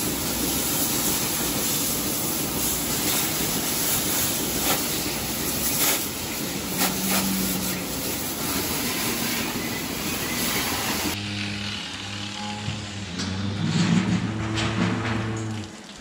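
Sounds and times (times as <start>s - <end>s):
water hose spraying: 0.0s - 11.2s
machine hum: 6.3s - 15.8s.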